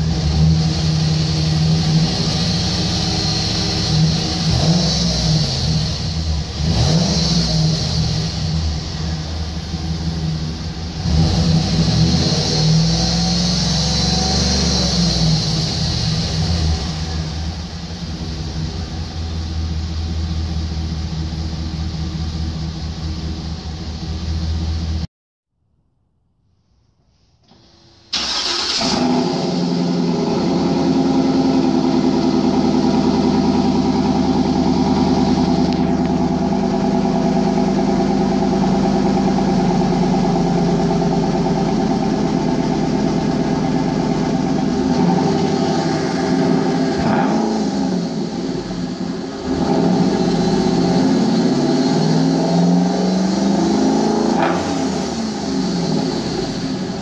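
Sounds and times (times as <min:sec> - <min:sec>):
engine revving: 0:00.0 - 0:19.1, 0:28.2 - 0:57.0
engine idling: 0:00.0 - 0:25.1, 0:28.1 - 0:53.8
engine cranking and starting: 0:27.5 - 0:30.0.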